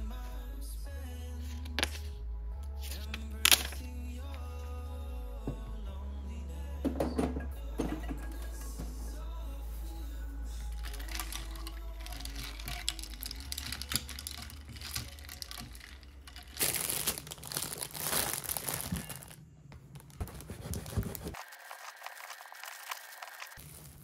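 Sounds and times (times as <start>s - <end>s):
metal stirrer clinking ice: 10.7s - 19.3s
plastic bag crinkling: 10.7s - 24.0s.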